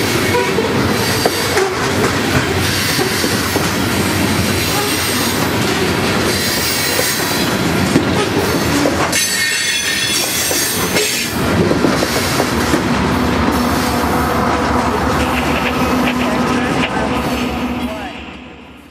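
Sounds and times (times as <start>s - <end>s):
diesel locomotive hum: 0.0s - 18.9s
train wheels rumbling and clacking: 0.0s - 18.9s
high wheel squeal: 9.1s - 11.4s.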